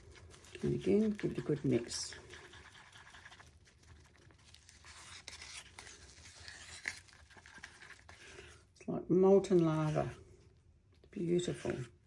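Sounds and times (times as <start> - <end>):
wooden stick scraping plastic cup: 0.0 - 4.2.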